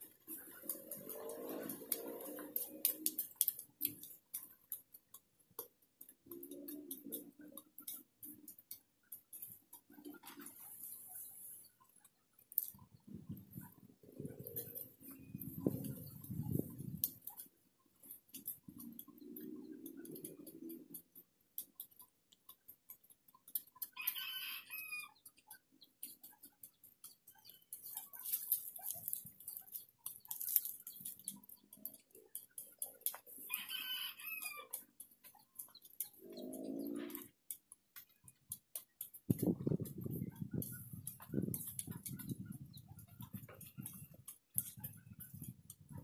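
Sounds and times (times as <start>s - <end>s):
weeds being pulled: 0.0s - 4.4s, 27.7s - 31.3s
rooster crowing: 33.5s - 34.7s.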